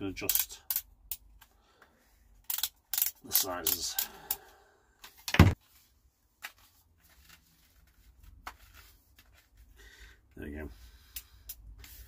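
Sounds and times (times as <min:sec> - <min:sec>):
plastic helmet clicks and rustles: 0:00.2 - 0:04.4.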